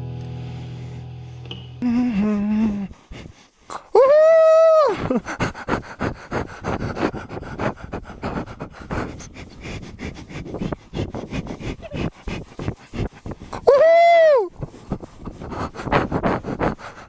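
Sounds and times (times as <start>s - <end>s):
person whooping: 1.8s - 2.9s, 3.9s - 5.2s, 13.6s - 14.6s
heavy panting breaths: 1.8s - 4.0s, 4.9s - 13.7s, 14.5s - 17.0s.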